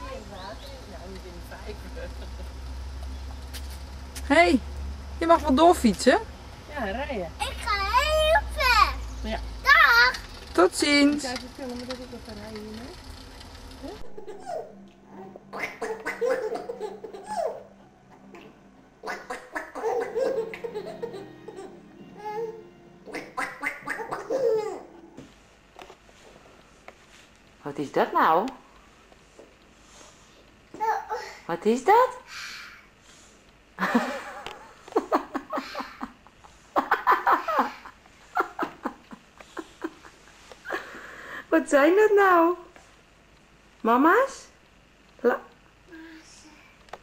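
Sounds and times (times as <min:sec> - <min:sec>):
toddler babbling: 0:07.4 - 0:09.0, 0:30.8 - 0:31.4
baby laughing: 0:14.0 - 0:25.0.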